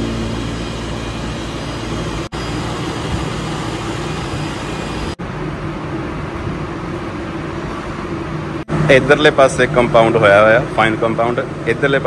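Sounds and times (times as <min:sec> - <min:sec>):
electric polisher humming: 0:00.0 - 0:05.2.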